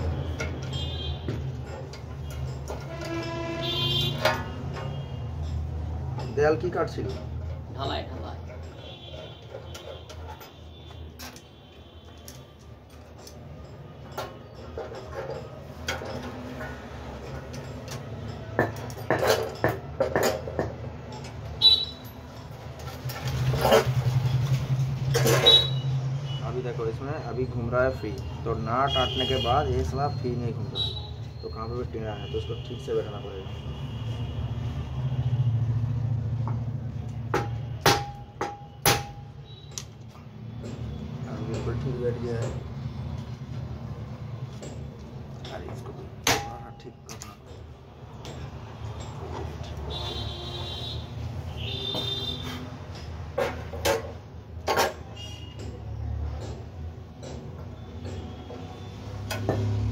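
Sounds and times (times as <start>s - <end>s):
metal-on-metal taps: 0.0s - 3.4s, 4.0s - 7.7s, 12.1s - 21.6s, 36.4s - 43.4s, 44.4s - 50.3s, 51.6s - 59.9s
metal tools clinking and knocking: 0.0s - 33.8s, 36.3s - 59.9s.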